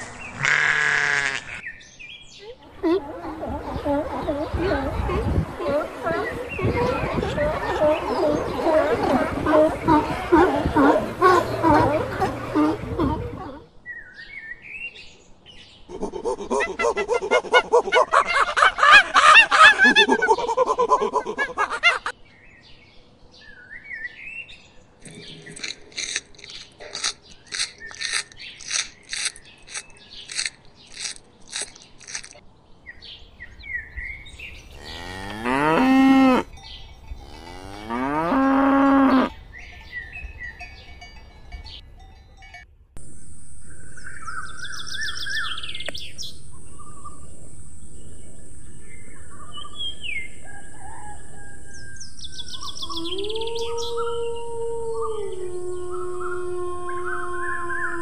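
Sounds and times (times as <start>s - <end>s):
bird calls: 0.0s - 14.5s, 23.9s - 42.4s, 43.6s - 58.0s
cattle mooing: 34.7s - 36.6s, 37.2s - 39.4s
high chirps: 38.8s - 53.8s
steady high hiss: 43.0s - 52.9s.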